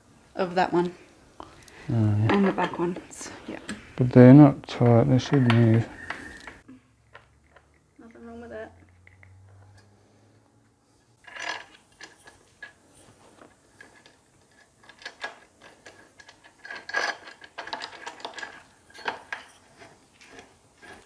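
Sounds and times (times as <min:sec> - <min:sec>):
metallic clicks and scrapes of bolts: 0:11.2 - 0:13.1, 0:13.8 - 0:21.0.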